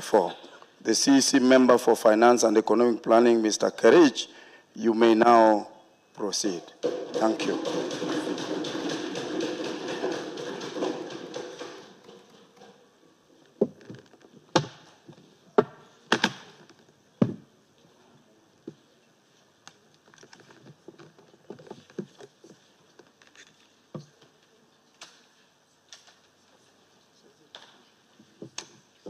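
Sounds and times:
knocks and taps: 0:06.8 - 0:12.8.

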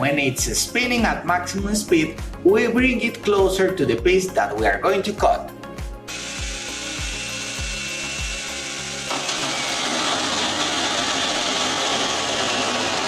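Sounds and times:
chainsaw cutting wood: 0:06.1 - 0:13.0.

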